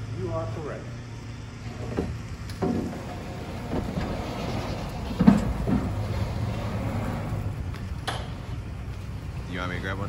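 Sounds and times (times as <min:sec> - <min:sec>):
truck low hum: 0:00.0 - 0:10.0
pallet knocking and scraping on metal: 0:01.8 - 0:06.2.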